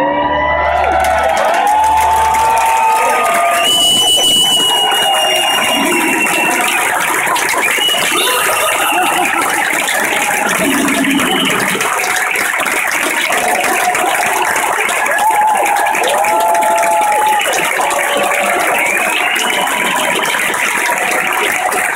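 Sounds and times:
crowd cheering and clapping: 0:00.0 - 0:21.9
whistles: 0:03.3 - 0:09.2, 0:18.1 - 0:20.0.

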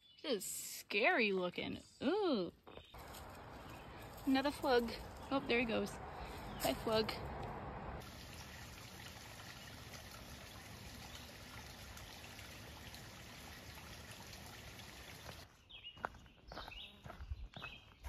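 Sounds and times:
water trickling down rock: 0:08.0 - 0:15.4.

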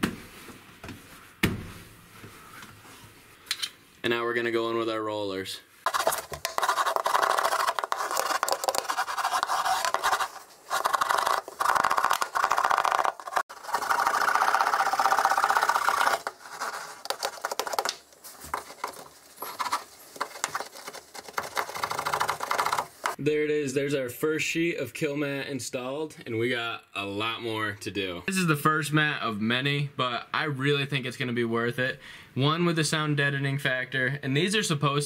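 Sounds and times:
hand roller rolling over mat: 0:05.9 - 0:23.2.

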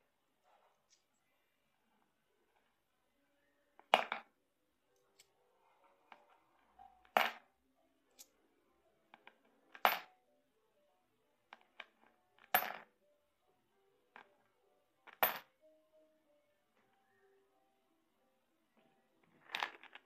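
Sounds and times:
faint clicks of coins handled: 0:00.2 - 0:02.8, 0:08.0 - 0:10.1, 0:15.0 - 0:15.5, 0:19.2 - 0:20.0
coins clinking into coin bank: 0:09.7 - 0:10.2, 0:11.8 - 0:12.9, 0:15.1 - 0:15.6.

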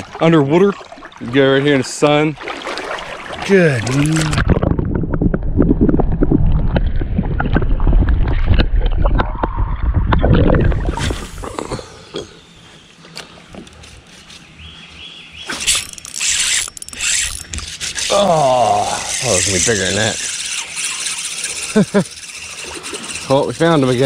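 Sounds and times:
underwater water churning: 0:00.0 - 0:11.8, 0:17.6 - 0:24.0.

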